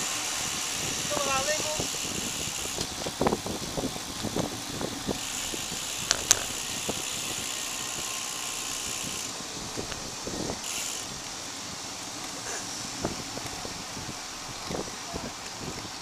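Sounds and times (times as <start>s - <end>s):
tyres hissing on pavement: 0.0s - 16.0s
sharp clicks: 6.0s - 6.6s.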